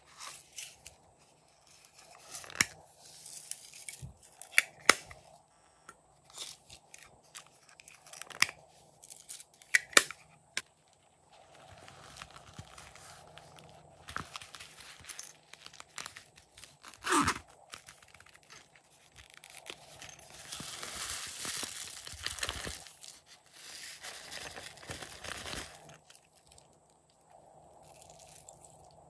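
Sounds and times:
plastic pouch crinkling: 0:09.2 - 0:26.8
zipper pulled open: 0:16.2 - 0:18.7.

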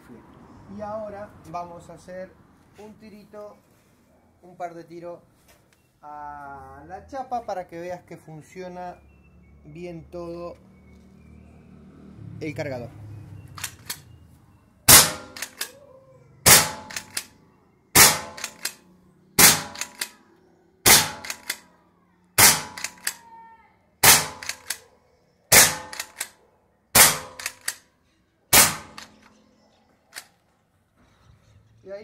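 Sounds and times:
rifle action clacks: 0:13.6 - 0:14.1, 0:14.9 - 0:15.8, 0:16.5 - 0:17.3, 0:18.0 - 0:18.8, 0:19.4 - 0:20.2, 0:20.9 - 0:21.6, 0:22.4 - 0:23.3, 0:24.0 - 0:24.8, 0:25.5 - 0:26.4, 0:27.0 - 0:27.8, 0:28.6 - 0:29.4, 0:30.1 - 0:30.4
air rifle shot crack: 0:14.9 - 0:15.7, 0:16.5 - 0:17.2, 0:18.0 - 0:18.8, 0:19.4 - 0:20.1, 0:20.9 - 0:21.6, 0:22.4 - 0:23.2, 0:24.0 - 0:24.8, 0:25.5 - 0:26.3, 0:27.0 - 0:27.8, 0:28.6 - 0:29.2.

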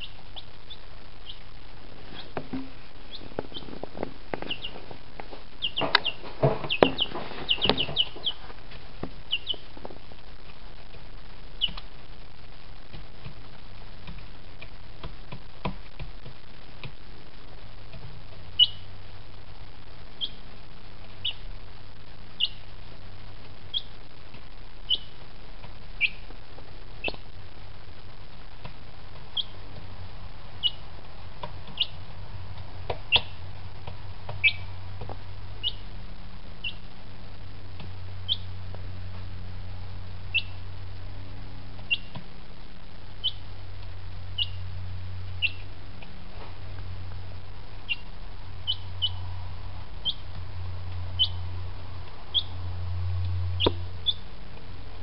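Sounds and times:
chick peeping: 0:00.0 - 0:01.5, 0:02.1 - 0:05.0, 0:05.6 - 0:09.8, 0:11.6 - 0:11.9, 0:17.9 - 0:18.9, 0:20.2 - 0:21.5, 0:22.3 - 0:22.7, 0:23.7 - 0:24.0, 0:24.8 - 0:25.2, 0:26.0 - 0:26.3, 0:27.0 - 0:27.2, 0:29.2 - 0:29.8, 0:30.6 - 0:32.1, 0:33.1 - 0:33.4, 0:34.3 - 0:34.7, 0:35.6 - 0:35.9, 0:36.6 - 0:36.9, 0:38.2 - 0:38.5, 0:40.3 - 0:40.6, 0:41.8 - 0:42.2, 0:43.2 - 0:43.5, 0:44.3 - 0:44.6, 0:45.3 - 0:45.7, 0:47.8 - 0:49.3, 0:50.0 - 0:50.4, 0:51.1 - 0:52.6, 0:53.5 - 0:54.3
steady low hum: 0:00.0 - 0:55.0.

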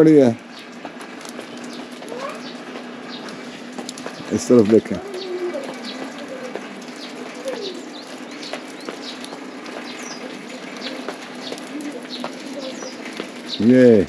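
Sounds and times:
birds chirping: 0:00.0 - 0:14.0
low drawn-out bird notes: 0:00.0 - 0:14.0.

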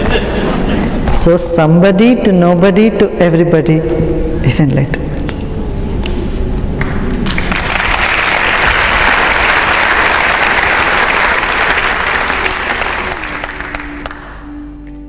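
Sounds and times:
audience applauding: 0:06.8 - 0:14.6.

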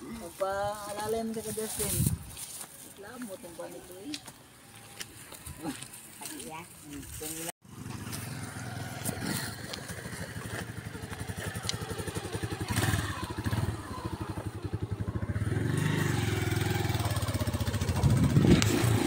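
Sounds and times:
small motorcycle engine running: 0:07.6 - 0:19.0.

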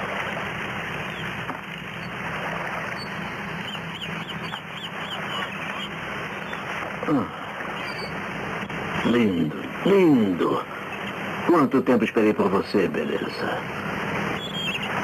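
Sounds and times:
bird squawks: 0:02.8 - 0:08.2, 0:14.3 - 0:15.0.

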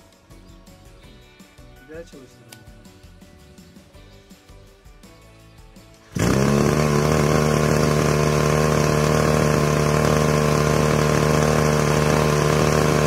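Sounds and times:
brush cutter engine idling: 0:06.1 - 0:13.0.

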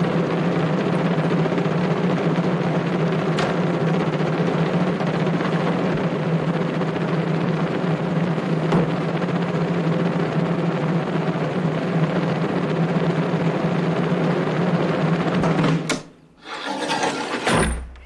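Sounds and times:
blade sliding rush: 0:16.4 - 0:17.8.

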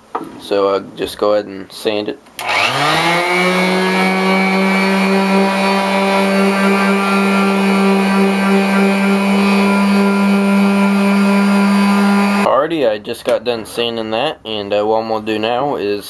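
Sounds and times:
orbital sander running: 0:02.4 - 0:12.5.

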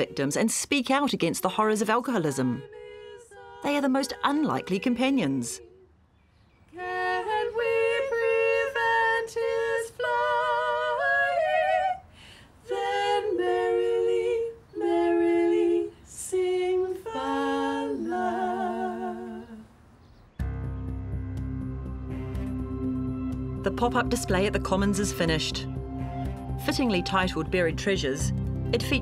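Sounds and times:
women singing in harmony: 0:01.9 - 0:05.9, 0:06.7 - 0:19.7.

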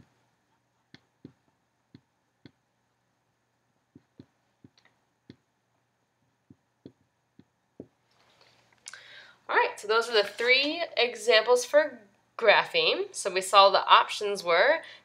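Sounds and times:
marker tapping on whiteboard: 0:00.9 - 0:02.6, 0:03.9 - 0:05.5, 0:06.5 - 0:08.0.

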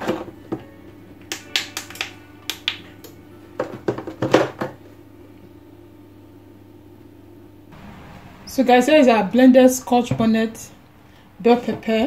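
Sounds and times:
faint background music: 0:00.0 - 0:07.8.

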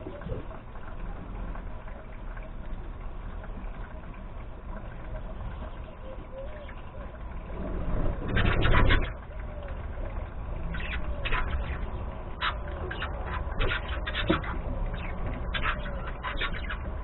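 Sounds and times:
budgerigars chattering: 0:10.7 - 0:17.0.

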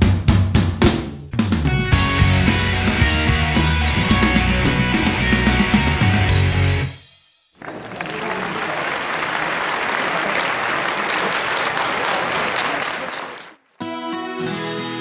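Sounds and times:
guitar-led music: 0:01.6 - 0:07.0, 0:13.8 - 0:15.0
audience clapping: 0:07.6 - 0:13.8.

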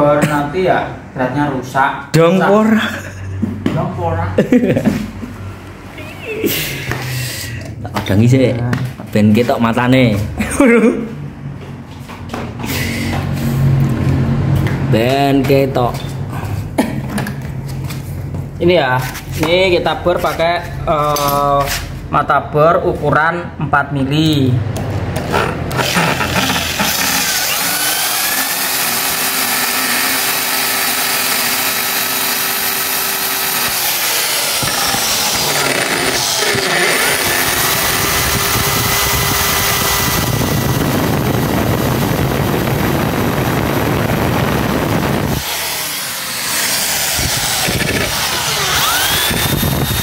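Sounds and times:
electric drill drilling into metal: 0:25.7 - 0:50.0.

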